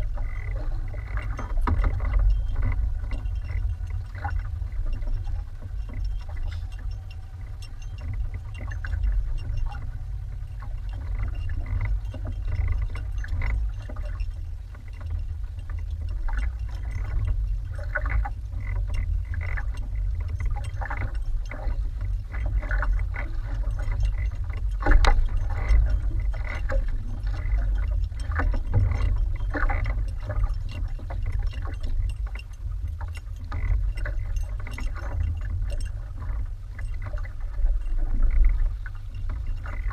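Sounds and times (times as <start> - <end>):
water slapping against boat hull: 0.0 - 39.9
wind rumble on microphone: 0.0 - 39.9.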